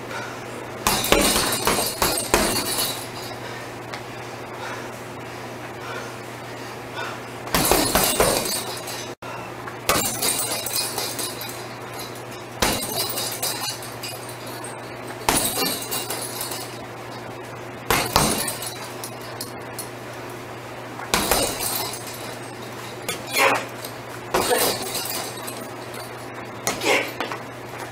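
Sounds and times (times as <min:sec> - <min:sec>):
gloves pounding punching bag: 0:00.8 - 0:03.0, 0:07.5 - 0:08.7, 0:09.9 - 0:11.4, 0:12.6 - 0:13.8, 0:15.2 - 0:16.6, 0:17.9 - 0:19.0, 0:21.1 - 0:22.2
chain jangling: 0:00.9 - 0:03.4, 0:07.6 - 0:09.2, 0:09.9 - 0:16.8, 0:17.9 - 0:19.9, 0:21.1 - 0:26.3.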